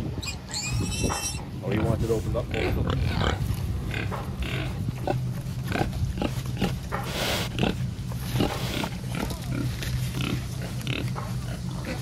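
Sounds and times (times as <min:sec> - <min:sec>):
steady low hum: 0:00.0 - 0:12.0
pigs crunching corn: 0:02.6 - 0:12.0.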